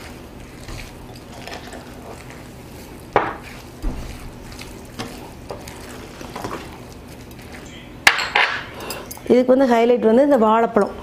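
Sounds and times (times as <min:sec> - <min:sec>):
spoon scraping glass bowl: 0:00.6 - 0:02.5.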